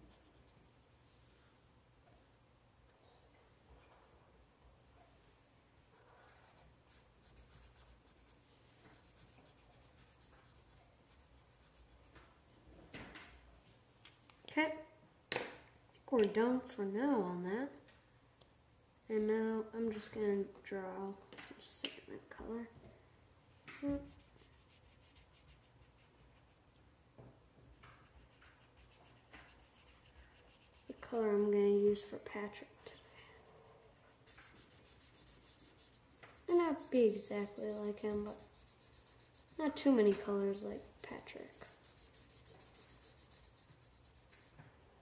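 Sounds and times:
marker colouring on paper: 0:06.1 - 0:12.1, 0:23.9 - 0:26.6, 0:28.0 - 0:31.4, 0:34.2 - 0:44.6.

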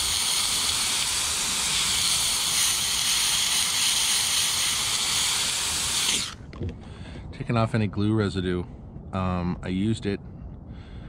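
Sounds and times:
steamer hissing steam: 0:00.0 - 0:06.4.

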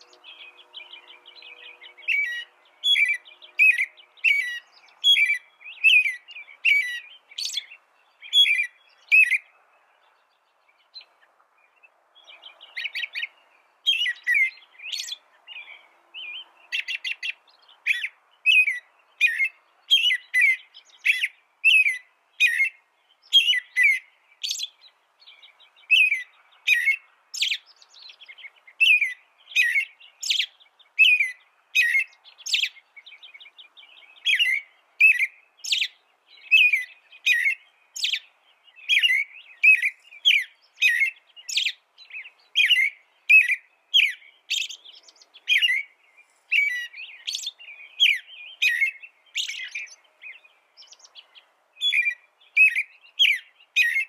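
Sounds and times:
robin singing whistled notes: 0:00.0 - 0:54.0.

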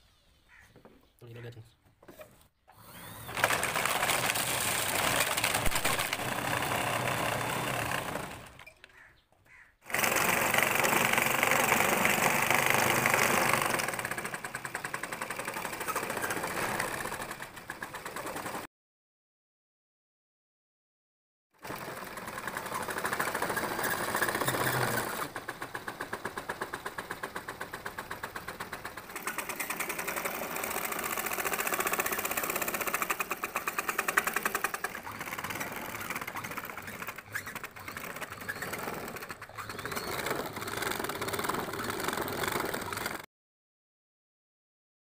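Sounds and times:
small electric motor rattling: 0:02.7 - 0:09.1, 0:09.8 - 0:18.7, 0:21.6 - 0:43.3.

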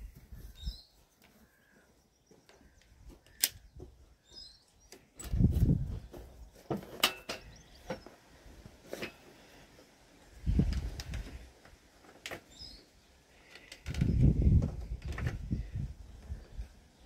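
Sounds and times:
birds chirping: 0:00.0 - 0:08.4, 0:12.4 - 0:17.0.

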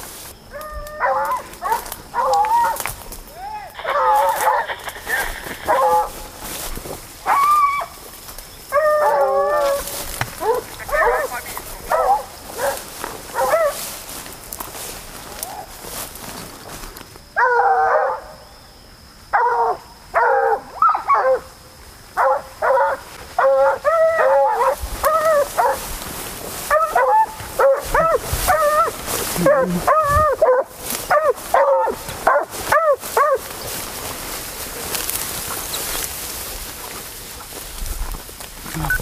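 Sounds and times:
dogs barking and yelping: 0:00.5 - 0:02.9, 0:03.8 - 0:06.6, 0:07.2 - 0:08.0, 0:08.7 - 0:13.9, 0:17.4 - 0:18.4, 0:19.3 - 0:21.5, 0:22.2 - 0:26.0, 0:26.6 - 0:33.8.

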